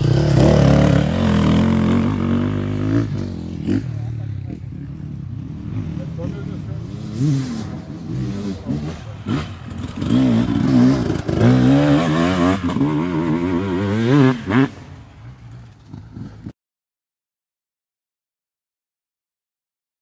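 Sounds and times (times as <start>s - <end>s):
dirt bike engine revving: 0.0s - 15.1s.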